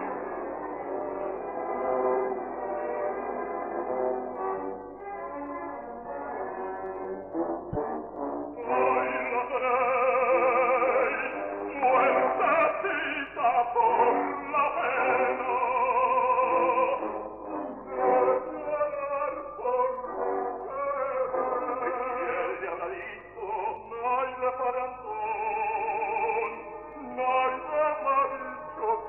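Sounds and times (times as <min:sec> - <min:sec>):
operatic baritone singing: 0:07.6 - 0:29.0.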